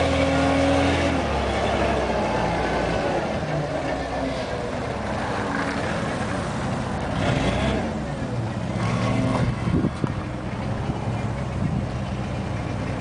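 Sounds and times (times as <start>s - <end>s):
forklift engine running: 0.0s - 13.0s.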